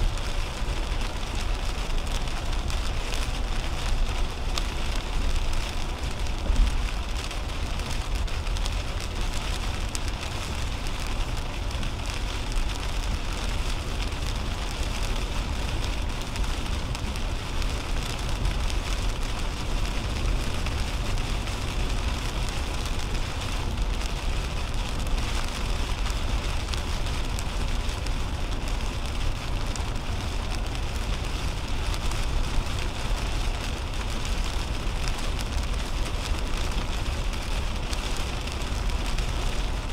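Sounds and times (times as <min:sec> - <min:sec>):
heavy rain on car windshield: 0:00.0 - 0:39.9.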